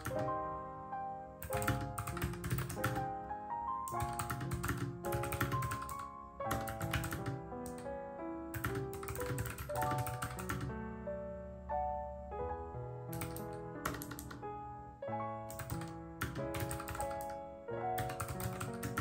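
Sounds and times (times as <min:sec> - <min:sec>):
keyboard key clicks: 0:00.0 - 0:00.3, 0:01.4 - 0:03.0, 0:03.9 - 0:07.9, 0:08.6 - 0:10.7, 0:13.1 - 0:14.4, 0:15.5 - 0:17.4
background piano music: 0:00.0 - 0:19.0.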